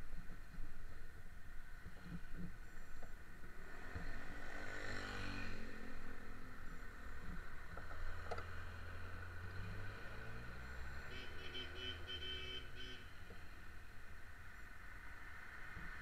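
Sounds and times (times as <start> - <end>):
road traffic noise: 0.0 - 16.0
low engine hum close by: 1.8 - 16.0
vehicle passing by: 3.6 - 6.4, 8.1 - 11.2.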